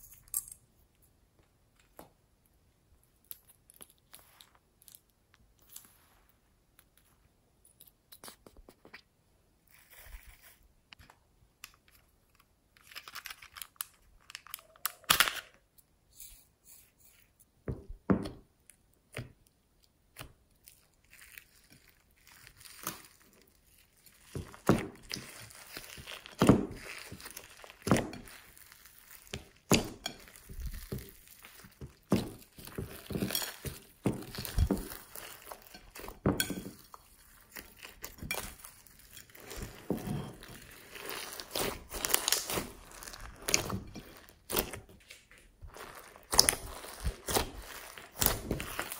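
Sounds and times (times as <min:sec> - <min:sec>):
crinkly crunches of slime add-ins: 0:03.0 - 0:07.2, 0:08.0 - 0:10.9, 0:19.5 - 0:48.9
hands squishing glitter slime: 0:18.2 - 0:48.9.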